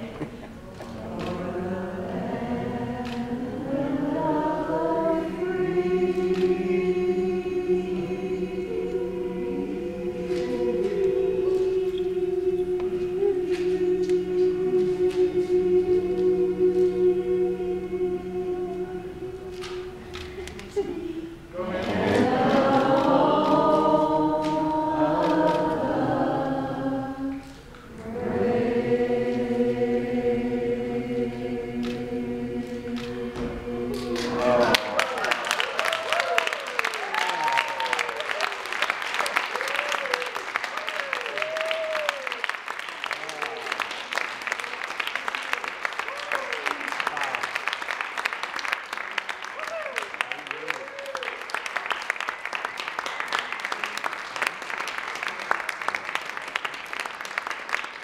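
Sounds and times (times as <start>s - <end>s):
choir singing held notes: 0.0s - 42.2s.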